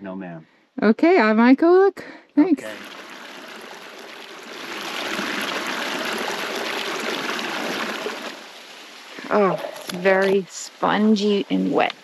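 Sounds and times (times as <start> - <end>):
water trickling into bottle: 2.6 - 10.4.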